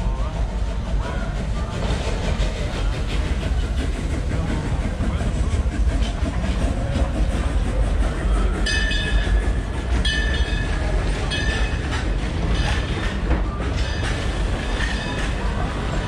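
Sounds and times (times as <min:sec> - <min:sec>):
train cars rumbling and clacking: 0:00.0 - 0:16.0.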